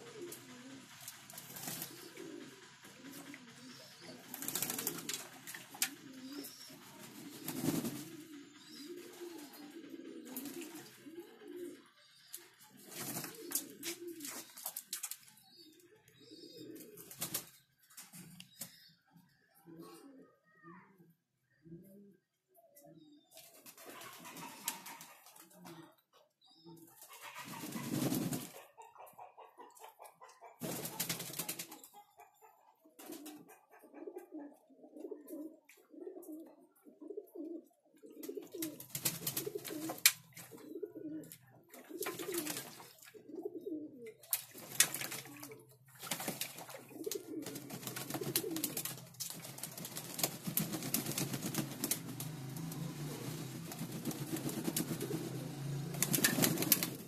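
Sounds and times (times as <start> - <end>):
pigeons splashing and flapping wings: 0.0 - 11.2, 12.3 - 15.4, 16.4 - 18.7, 23.4 - 25.8, 27.0 - 28.6, 30.6 - 31.9, 33.0 - 33.4, 38.2 - 43.4, 44.0 - 57.0
pigeons cooing: 0.0 - 57.0
wing-beats in water: 44.2 - 55.4.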